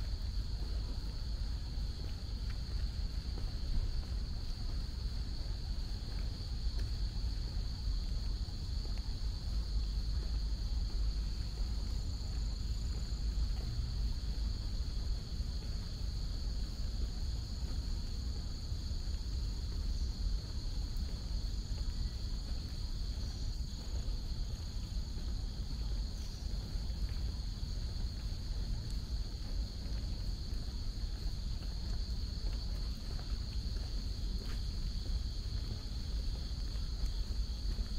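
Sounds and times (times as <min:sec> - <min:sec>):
crickets and insects chirping: 0:00.0 - 0:37.9.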